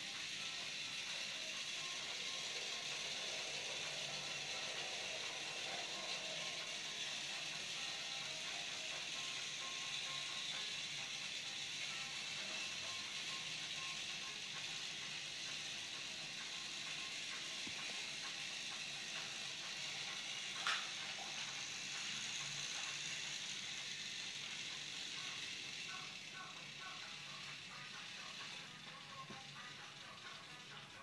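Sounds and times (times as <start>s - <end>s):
toy train motor whirring: 0.0s - 31.0s
wheels running on plastic track: 0.0s - 31.0s.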